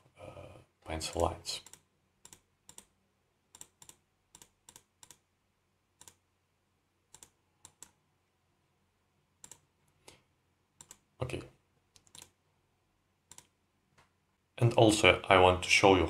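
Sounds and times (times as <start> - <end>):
faint computer mouse clicks: 1.1 - 2.9, 3.5 - 5.2, 6.0 - 6.2, 7.1 - 8.0, 9.4 - 10.2, 10.8 - 11.0, 11.9 - 12.4, 13.3 - 14.1.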